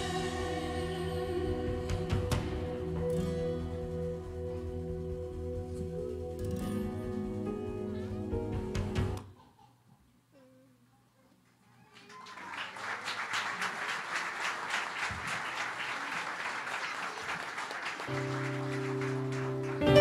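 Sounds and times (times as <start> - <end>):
instrument low sustained chord: 2.7 - 8.5
audience clapping: 11.8 - 20.0.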